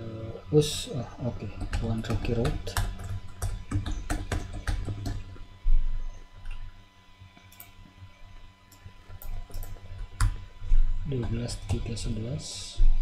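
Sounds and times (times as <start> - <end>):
computer keyboard typing: 1.4 - 5.4, 7.4 - 7.8, 8.7 - 10.4, 11.1 - 12.0.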